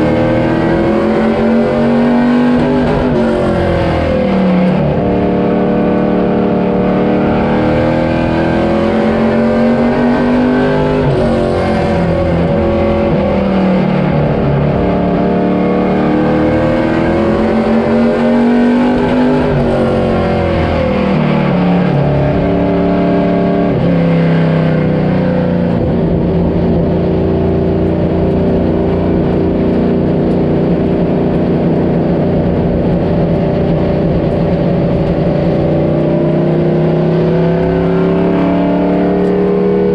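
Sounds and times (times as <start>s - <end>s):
vehicle engine running: 25.6s - 39.9s.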